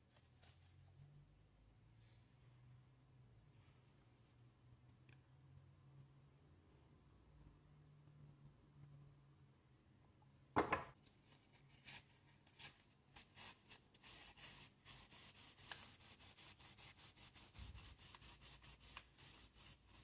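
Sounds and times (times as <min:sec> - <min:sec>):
paper towel scrubbing metal cylinder: 0:13.2 - 0:20.0.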